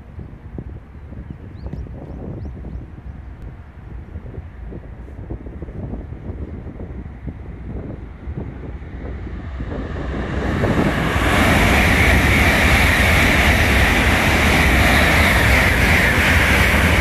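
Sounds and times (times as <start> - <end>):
high-speed train rushing past: 3.7 - 17.0.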